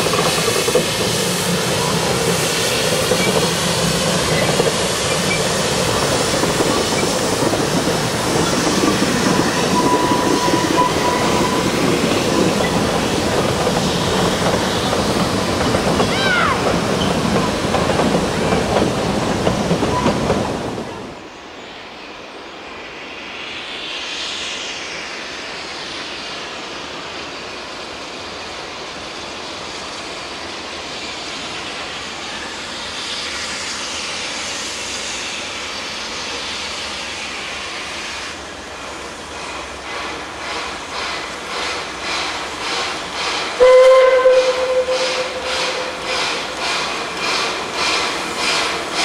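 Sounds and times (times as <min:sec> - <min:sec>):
steam locomotive chuffing: 0:00.0 - 0:21.2, 0:23.1 - 0:49.0
steam locomotive hiss: 0:00.0 - 0:49.0
steam whistle blast: 0:09.6 - 0:11.8, 0:43.6 - 0:46.4.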